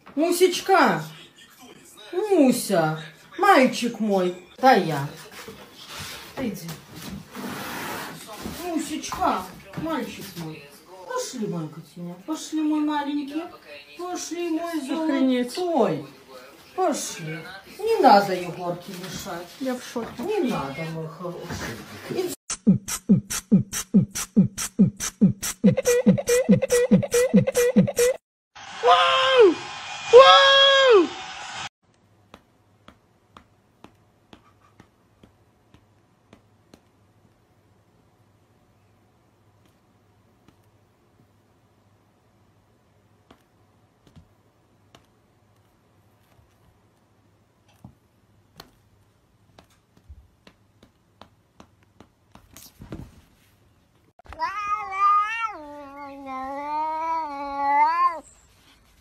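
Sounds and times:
cat yowling: 0:54.3 - 0:58.3.

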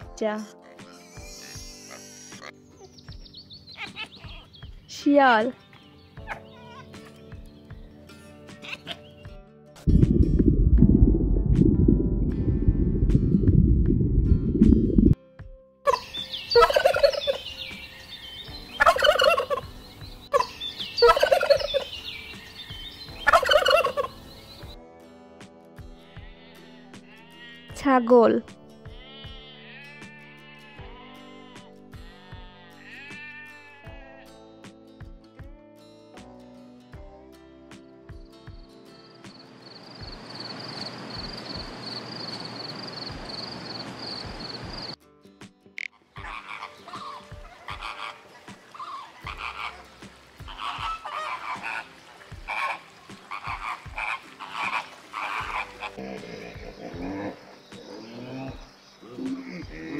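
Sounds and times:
insect chirping trill: 0:01.0 - 0:02.6, 0:39.3 - 0:45.0
bird gobbling: 0:15.9 - 0:18.0, 0:18.8 - 0:19.7, 0:20.3 - 0:22.0, 0:23.2 - 0:24.6, 0:45.8 - 0:58.3.

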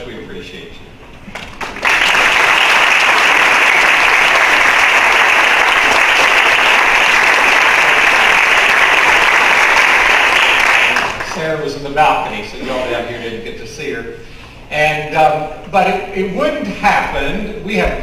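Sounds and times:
crowd clapping: 0:01.3 - 0:11.6.

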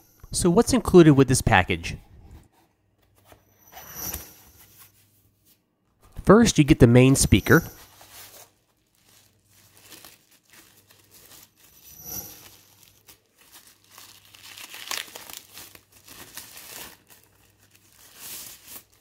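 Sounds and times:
plastic bag crinkling and tearing: 0:08.0 - 0:19.0.

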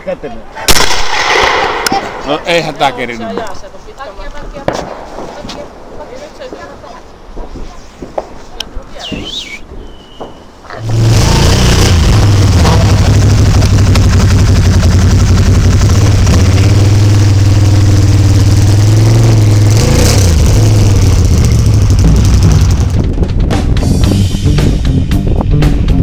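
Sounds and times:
vehicle engine running: 0:10.8 - 0:25.3.

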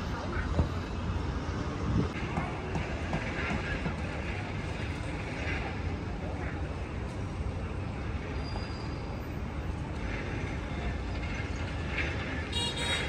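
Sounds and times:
low rumble of traffic: 0:00.0 - 0:13.0
high squeal: 0:08.4 - 0:09.3.

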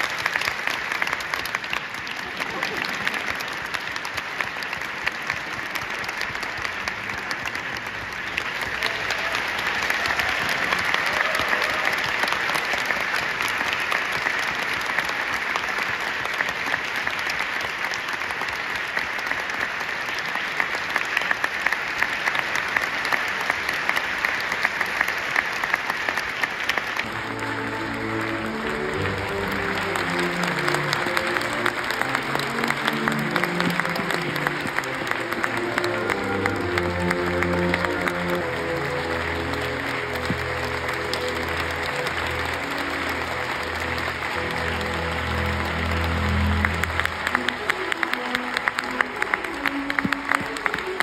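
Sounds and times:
audience applauding: 0:00.0 - 0:51.0
music: 0:08.4 - 0:16.0, 0:27.0 - 0:51.0.

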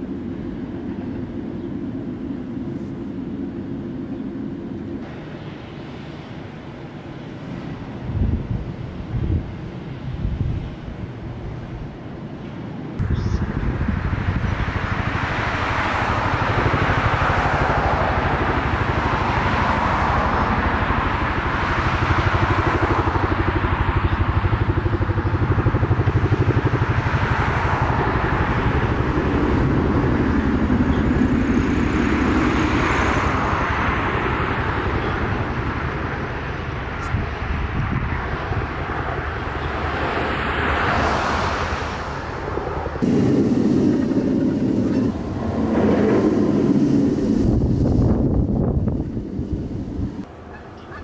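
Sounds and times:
roller coaster rumbling on track: 0:41.0 - 0:51.0.

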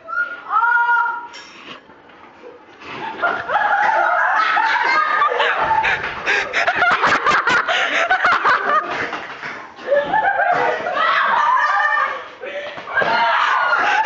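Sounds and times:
girls laughing and squealing: 0:02.5 - 0:09.0, 0:09.8 - 0:14.0.

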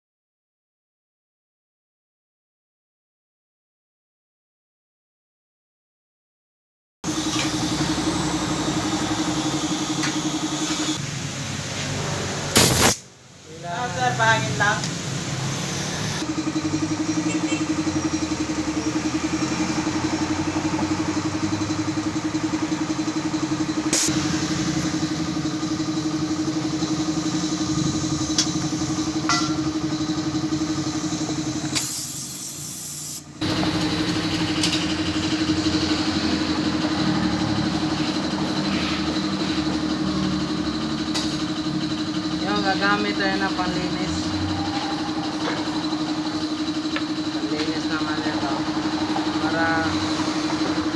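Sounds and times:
motor running drone: 0:07.1 - 0:11.0, 0:14.0 - 0:32.6, 0:33.2 - 0:50.9.

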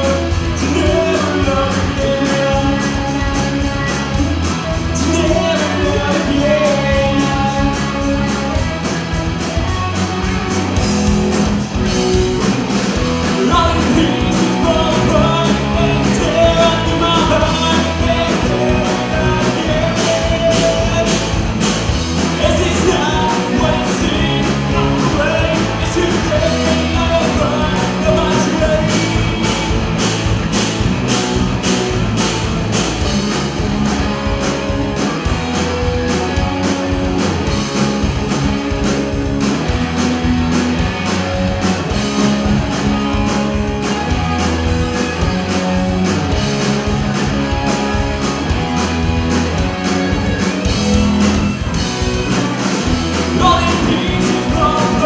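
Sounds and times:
man singing: 0:00.0 - 0:08.2, 0:13.3 - 0:21.5, 0:22.2 - 0:29.8, 0:53.3 - 0:55.0
live rock band: 0:00.0 - 0:55.0.

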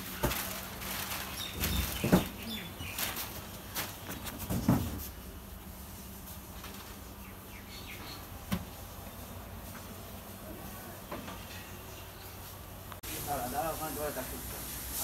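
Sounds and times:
bird chirps: 0:07.2 - 0:08.3.

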